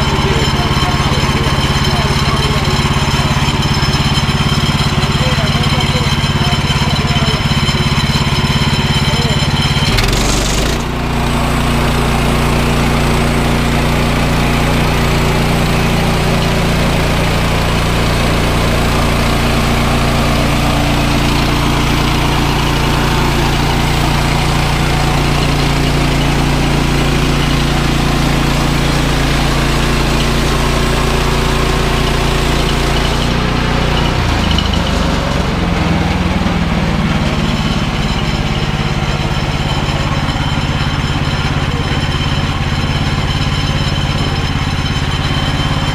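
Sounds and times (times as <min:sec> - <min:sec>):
saw blade cutting log: 0:00.0 - 0:35.2
sawmill gasoline engine running: 0:00.0 - 0:45.9.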